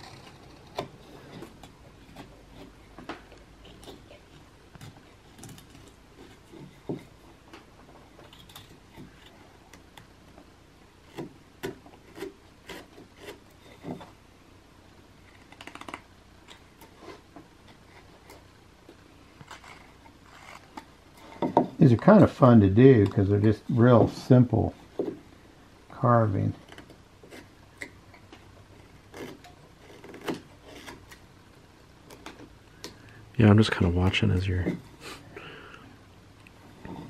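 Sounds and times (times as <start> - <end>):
knife whittling wood: 0.0 - 7.2.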